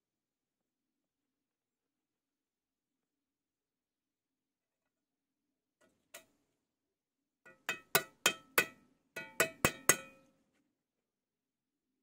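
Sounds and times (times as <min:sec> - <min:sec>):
metal tool tapping stone: 0:07.5 - 0:10.3.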